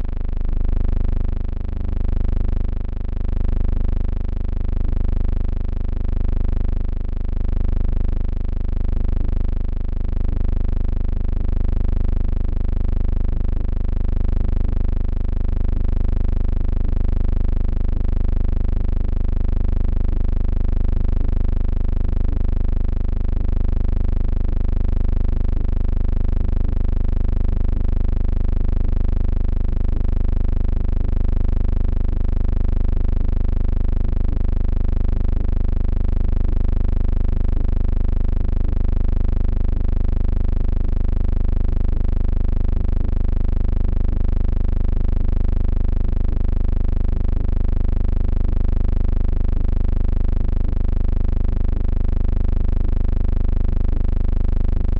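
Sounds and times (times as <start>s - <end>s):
steady deep hum: 0.0s - 0.2s.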